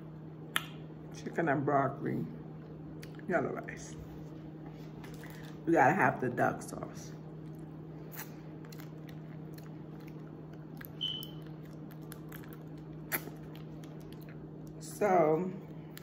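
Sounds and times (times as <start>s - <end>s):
steady low hum: 0.0s - 16.0s
high squeak: 11.0s - 11.4s.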